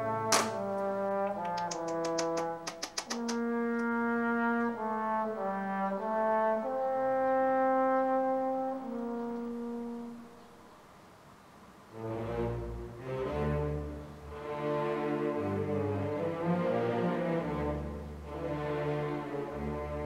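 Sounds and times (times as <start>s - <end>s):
quick sharp clicks: 0.3s - 3.9s
slow melody of held notes: 3.5s - 10.6s.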